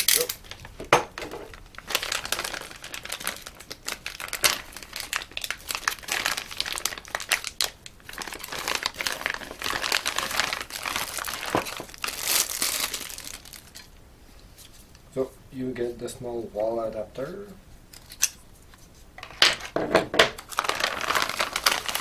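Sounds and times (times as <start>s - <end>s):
plastic bags crinkling: 0.0s - 13.9s, 19.2s - 22.0s.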